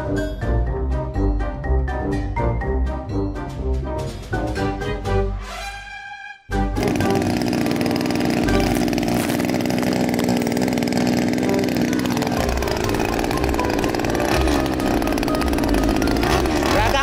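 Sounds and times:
brush cutter engine running: 6.6s - 17.0s.

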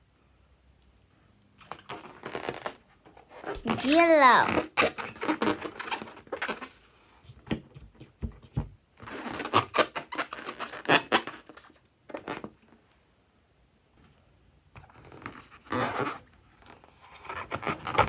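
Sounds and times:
rubber balloon squeaks and rubs: 1.7s - 6.8s, 9.0s - 12.6s, 14.8s - 18.0s.

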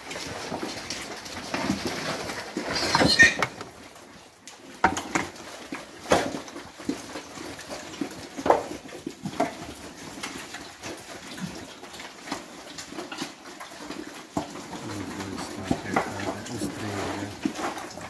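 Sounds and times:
pigs grunting and snuffling: 0.0s - 18.0s.

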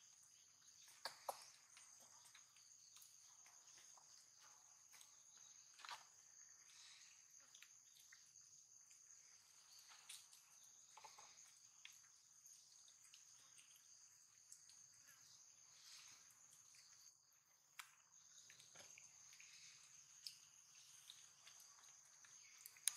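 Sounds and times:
insects droning: 0.0s - 22.9s
soft ticks: 22.2s - 22.9s.

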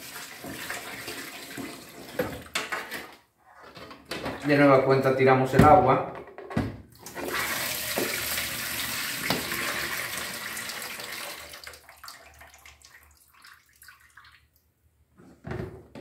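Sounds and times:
water splashing into metal sink: 7.0s - 14.5s.

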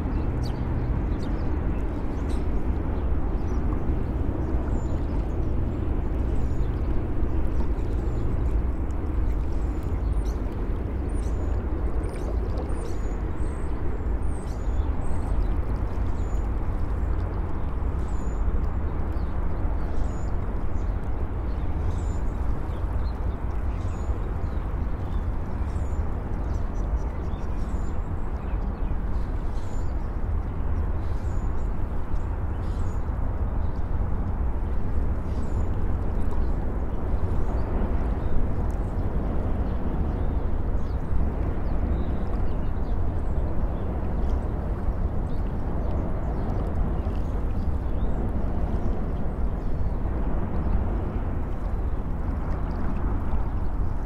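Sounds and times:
low rumble of city traffic: 0.0s - 54.0s.

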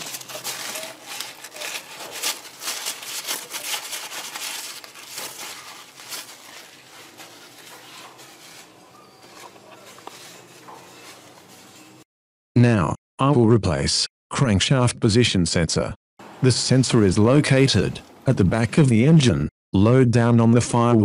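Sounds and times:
rag rubbing on metal: 0.0s - 12.0s.

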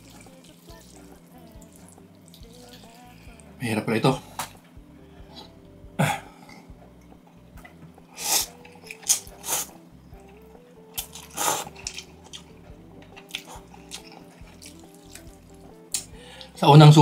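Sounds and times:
soft background music: 0.0s - 17.0s
person eating noodles: 8.1s - 16.5s.

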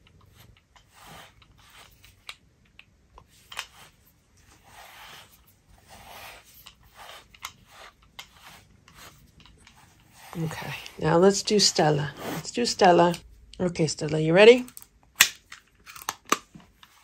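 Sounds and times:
brush scratching through fur: 0.3s - 2.1s, 3.8s - 13.2s.

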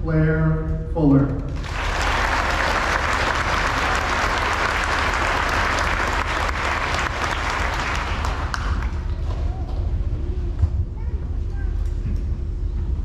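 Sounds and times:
low steady rumble: 0.0s - 13.0s
audience applauding: 1.6s - 9.8s.

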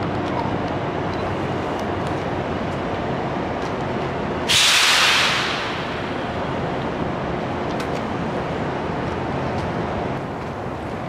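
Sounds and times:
train low hum: 0.0s - 11.0s
compressed air hiss: 4.5s - 6.0s.

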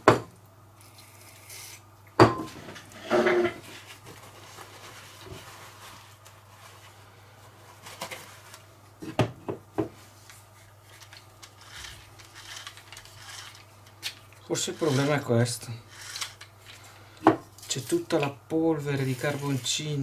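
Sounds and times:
paper rustle: 3.6s - 8.7s, 17.6s - 20.0s
objects knocking on workbench: 9.0s - 10.0s.

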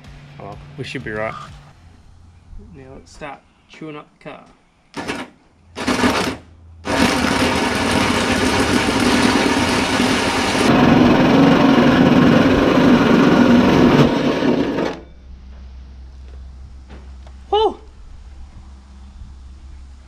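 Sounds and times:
drill cutting through metal: 5.8s - 15.0s.

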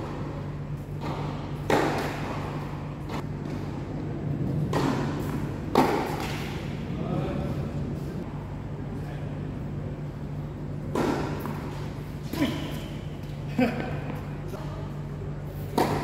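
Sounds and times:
steady low hum: 0.0s - 16.0s
tennis ball hit by racket: 1.0s - 3.2s, 4.6s - 6.6s, 10.9s - 11.8s, 15.7s - 16.0s.

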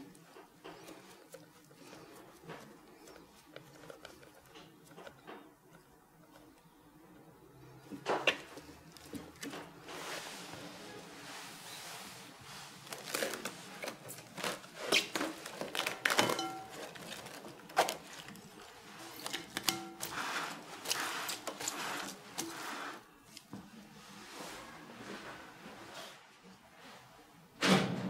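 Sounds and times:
cling film crinkling: 12.7s - 23.4s.

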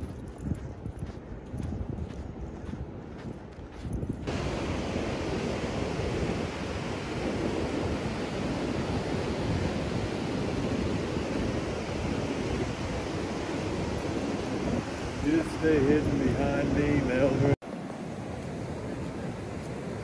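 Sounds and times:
wind on microphone: 0.0s - 20.0s
ocean surf breaking on beach: 4.3s - 20.0s.

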